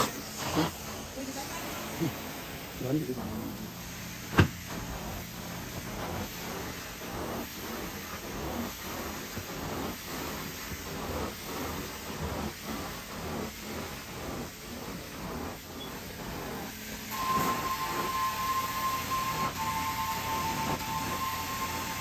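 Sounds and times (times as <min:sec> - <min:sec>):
carpet cleaning machine hissing: 0:00.0 - 0:22.0.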